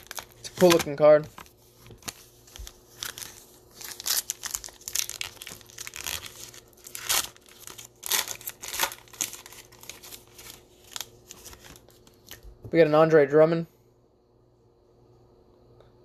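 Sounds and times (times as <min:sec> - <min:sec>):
foil wrapper crinkling and tearing: 0:00.0 - 0:12.4.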